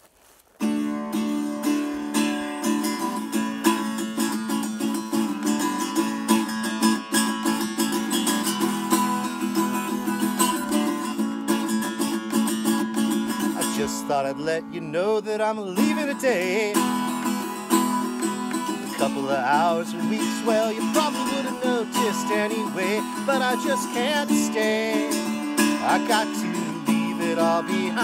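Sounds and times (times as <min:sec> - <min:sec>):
acoustic guitar strumming: 0:00.6 - 0:28.0.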